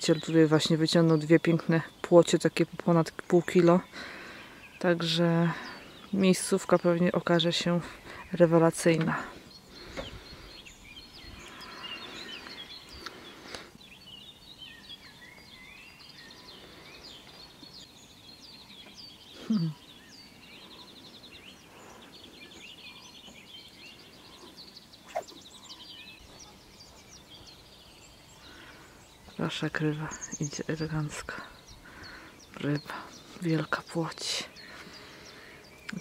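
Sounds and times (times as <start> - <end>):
songbirds chirping and trilling: 0.0 - 36.0.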